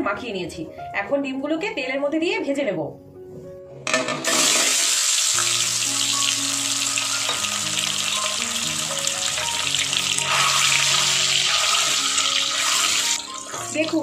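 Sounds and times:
eggs sizzling in hot oil: 4.0 - 14.0.

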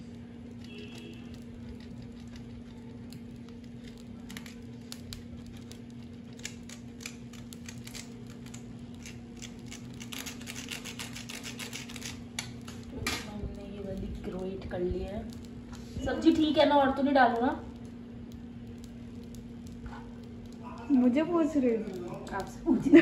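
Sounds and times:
steady low hum: 0.0 - 23.0
cheese rasping on metal grater: 6.5 - 12.2.

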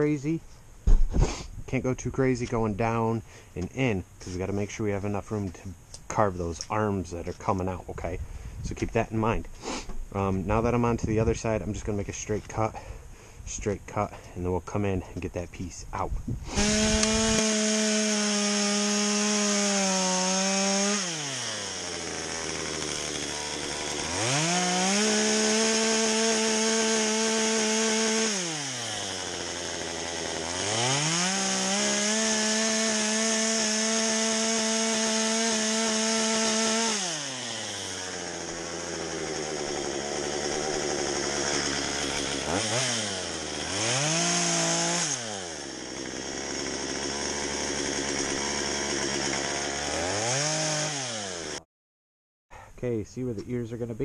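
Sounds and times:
chainsaw cutting log: 3.6 - 8.2, 16.4 - 51.6.

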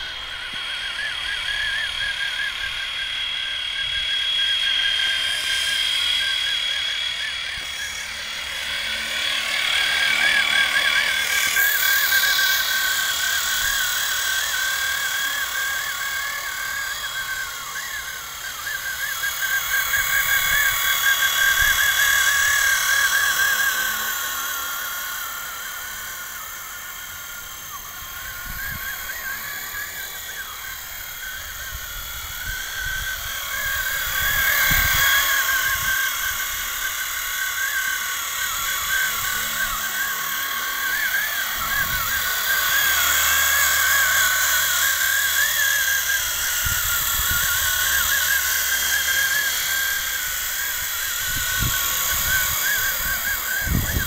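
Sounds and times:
model helicopter motor whine: 0.0 - 54.0
wind rumbling on microphone: 31.4 - 36.8, 51.1 - 54.0.

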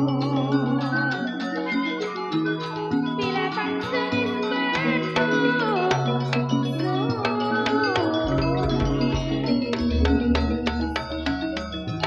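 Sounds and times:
amplified female voice singing: 0.0 - 11.6
deep low tone: 8.2 - 11.2.

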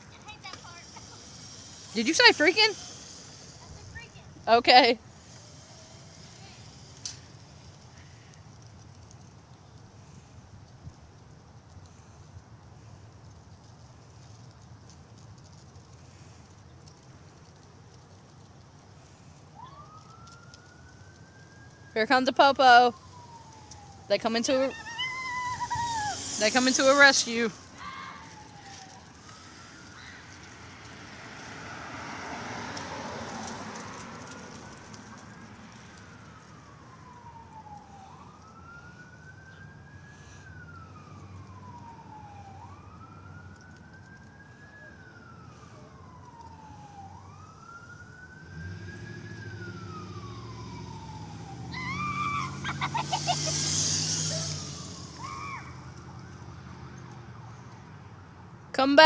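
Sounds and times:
vehicle rumble: 0.0 - 59.0
police siren wailing: 0.2 - 8.1, 19.0 - 57.7.

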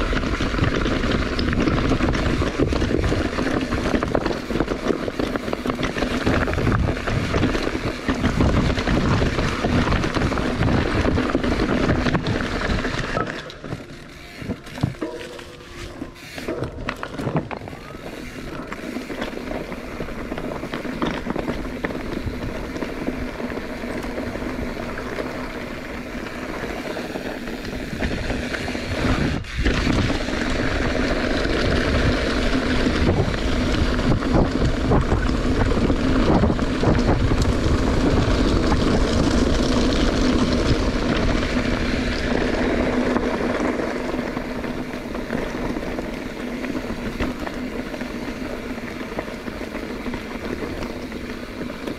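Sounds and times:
wind rushing over microphone: 0.0 - 13.4, 27.4 - 51.8
bike tyre rumble: 0.0 - 51.9.

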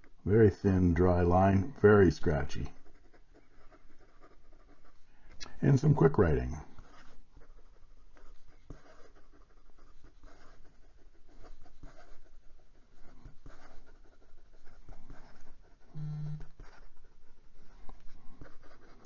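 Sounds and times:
pen nib scratching on paper: 0.0 - 19.0.

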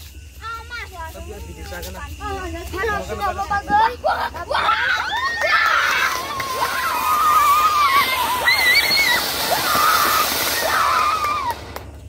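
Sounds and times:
firework fountain hissing: 2.2 - 12.0
children shrieking and shouting: 3.4 - 11.7.

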